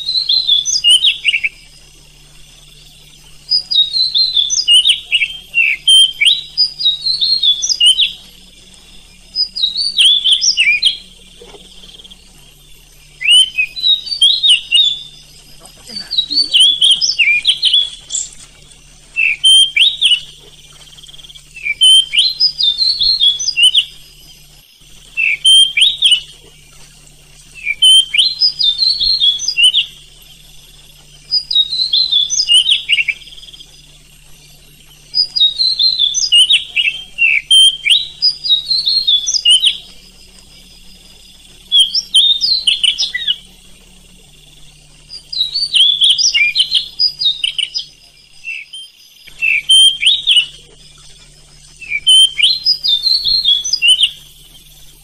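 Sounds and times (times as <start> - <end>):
bird singing whistled notes: 0.0 - 55.0.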